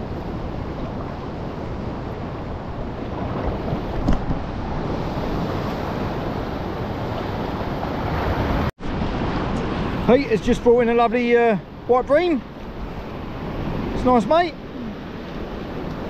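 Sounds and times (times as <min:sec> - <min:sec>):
wind rumbling on microphone: 0:00.0 - 0:11.0.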